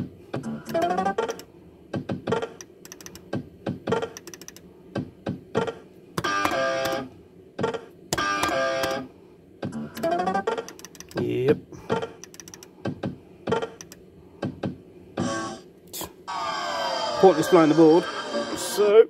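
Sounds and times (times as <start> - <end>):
button and reel clicks and clunks: 2.6 - 3.3, 4.0 - 4.6, 6.2 - 7.1, 8.1 - 9.0, 9.9 - 11.2, 12.1 - 12.7, 13.8 - 14.0.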